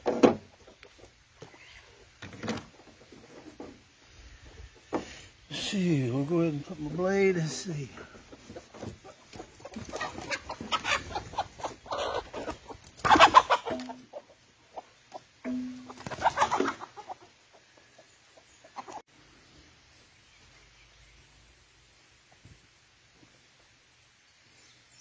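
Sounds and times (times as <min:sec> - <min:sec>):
faint outdoor background: 0:00.0 - 0:25.0
chickens clucking: 0:00.4 - 0:19.1.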